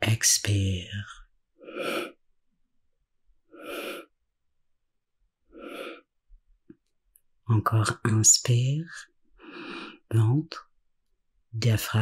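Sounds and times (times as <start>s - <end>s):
person exhaling in soft puffs: 1.6s - 2.2s, 3.5s - 4.1s, 5.5s - 6.1s.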